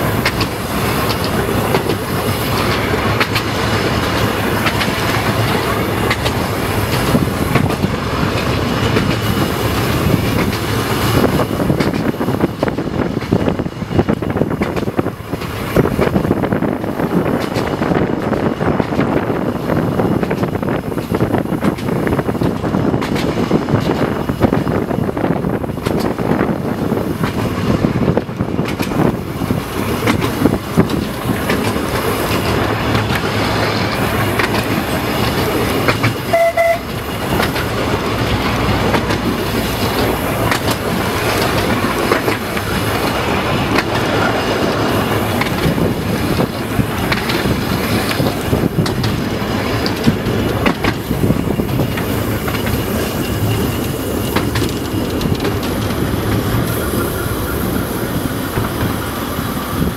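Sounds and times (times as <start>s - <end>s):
tram rumbling on track: 0.0s - 59.9s
wheels clicking on rail joints: 0.0s - 59.9s
tram horn toot: 36.2s - 37.2s.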